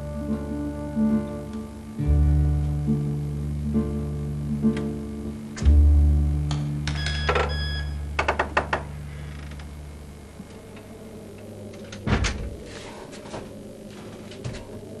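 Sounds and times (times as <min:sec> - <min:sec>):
low music chord: 0:00.0 - 0:06.9.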